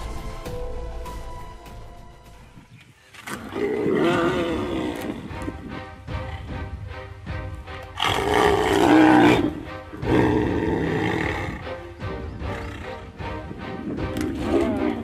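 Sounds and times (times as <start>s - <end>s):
background music: 0.0s - 15.0s
tigers roaring: 3.2s - 6.6s, 7.9s - 11.7s, 13.7s - 15.0s.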